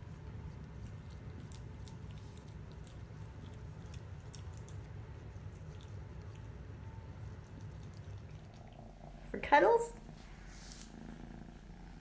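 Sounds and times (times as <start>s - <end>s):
kitten chewing wet food: 0.0s - 9.2s.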